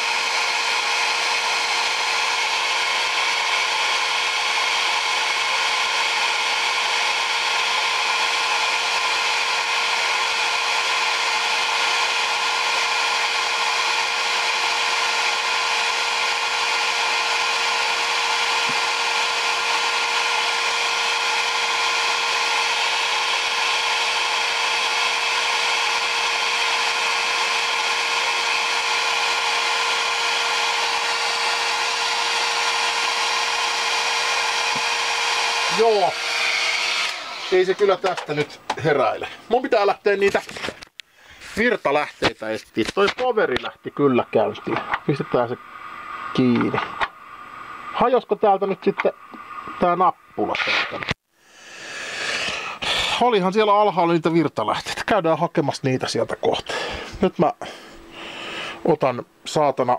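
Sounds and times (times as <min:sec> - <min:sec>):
power supply whirring hiss: 0:00.0 - 0:53.5
mid-pitched whine: 0:27.8 - 0:51.2.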